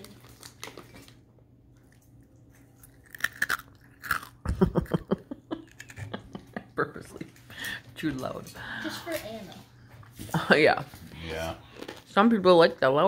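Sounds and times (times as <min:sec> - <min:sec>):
loud crunchy chewing: 0:02.5 - 0:04.4.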